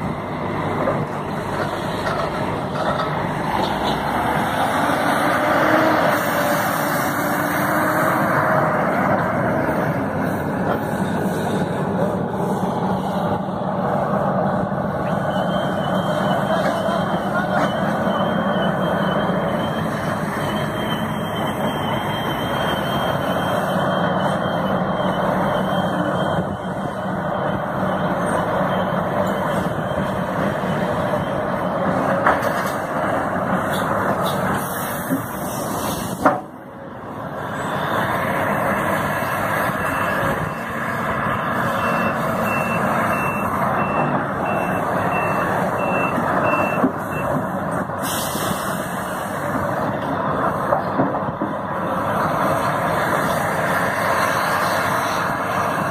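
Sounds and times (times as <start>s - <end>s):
excavator diesel engine and hydraulics: 0.0s - 55.9s
reversing alarm beeping: 14.9s - 32.2s, 39.7s - 47.5s.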